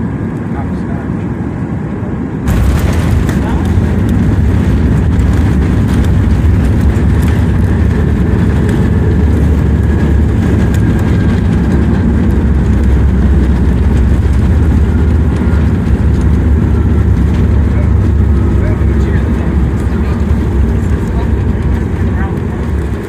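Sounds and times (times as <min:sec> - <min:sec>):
airplane cabin rumble: 0:00.0 - 0:23.0.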